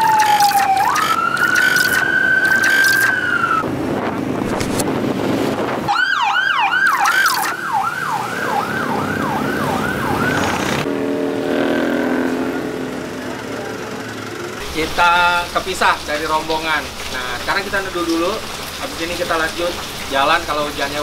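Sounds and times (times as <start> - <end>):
electronic siren yelping: 0.0 - 3.6, 5.9 - 10.9
road traffic and engine noise: 0.0 - 21.0.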